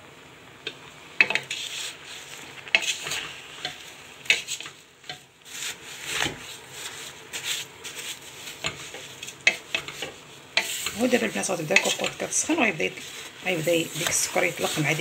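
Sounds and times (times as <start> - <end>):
wooden spatula scraping metal pot: 1.2 - 15.0.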